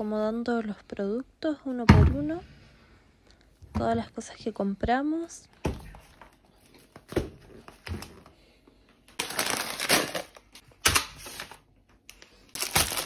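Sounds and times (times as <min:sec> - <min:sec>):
plastic packaging crinkling: 0:09.1 - 0:13.0.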